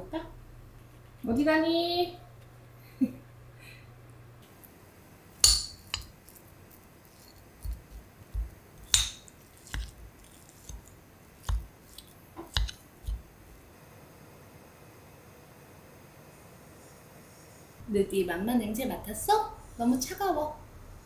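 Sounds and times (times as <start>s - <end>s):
metal spoon clinking on ceramic dishes: 5.4s - 6.4s.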